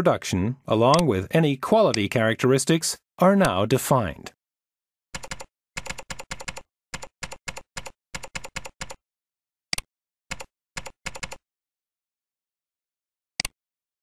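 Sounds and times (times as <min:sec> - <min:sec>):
typing on computer keyboard: 0:05.2 - 0:09.0, 0:10.3 - 0:11.4.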